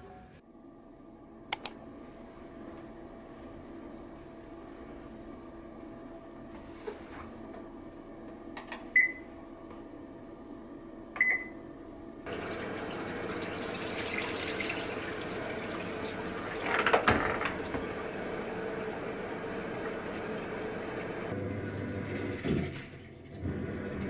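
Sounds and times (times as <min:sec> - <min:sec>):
short beeps from control panel: 0:09.0 - 0:09.2, 0:11.2 - 0:11.6
water pouring into drum: 0:12.3 - 0:19.1.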